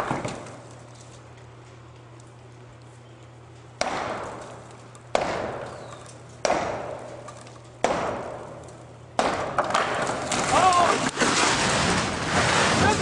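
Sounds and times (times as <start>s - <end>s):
sledgehammer striking concrete: 3.8s - 4.5s, 5.1s - 5.8s, 6.4s - 8.6s, 9.2s - 13.0s.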